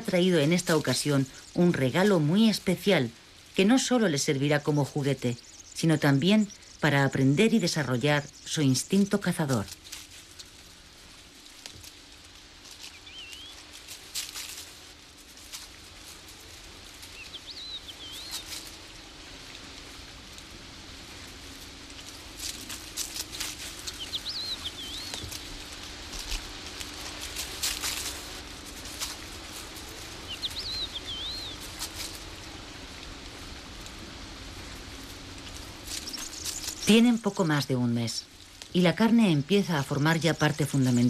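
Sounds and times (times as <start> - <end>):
animals scuffing on gravel: 0.0 - 41.0
faint low hum: 0.0 - 41.0
songbird warbling: 12.8 - 13.8, 17.0 - 19.2, 22.4 - 27.1, 29.4 - 33.0, 34.6 - 38.1.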